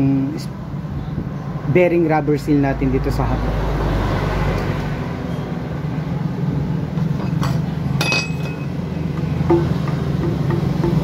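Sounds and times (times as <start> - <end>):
metal clinks of hand tools: 7.4 - 8.7
rubber mallet knocking steel pipe: 9.2 - 11.0.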